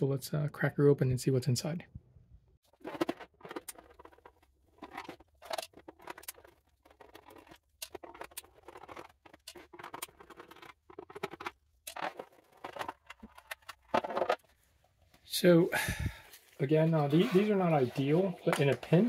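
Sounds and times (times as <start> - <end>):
plastic rattling: 2.7 - 14.6.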